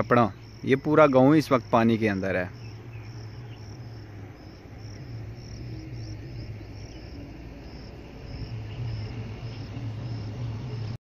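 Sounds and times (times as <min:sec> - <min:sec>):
insect chirping: 0:00.0 - 0:11.0
low rumble: 0:02.5 - 0:11.0.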